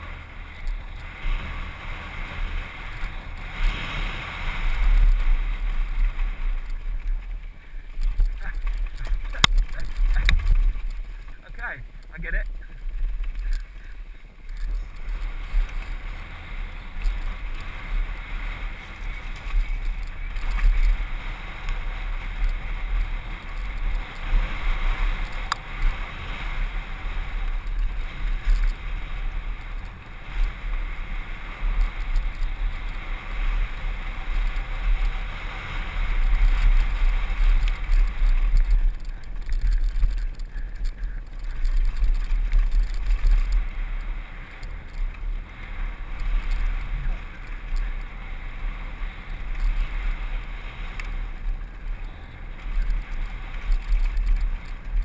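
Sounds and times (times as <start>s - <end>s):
bike rattling: 0.0s - 55.0s
wind buffeting microphone: 0.0s - 55.0s
tyres crunching over stones: 5.5s - 16.2s, 36.2s - 45.5s.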